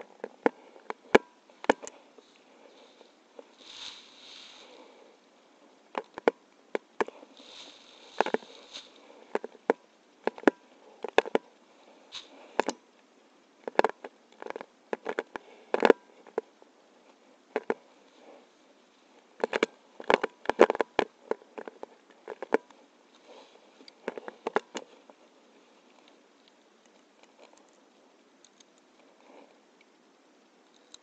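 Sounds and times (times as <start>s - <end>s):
brief rustle: 1.8s - 5.0s.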